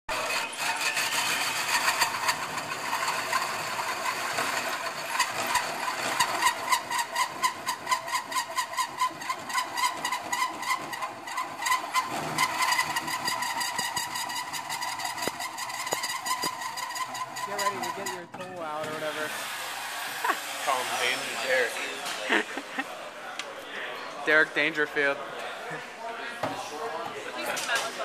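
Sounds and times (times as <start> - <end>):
drill hole saw grinding metal: 0.1 - 22.0.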